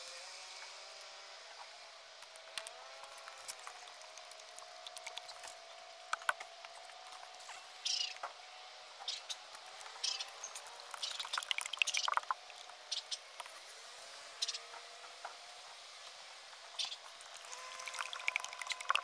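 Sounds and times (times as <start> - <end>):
glugging crackles: 10.6 - 12.7, 17.1 - 19.0
oil pouring into funnel: 10.9 - 12.5, 17.3 - 19.0.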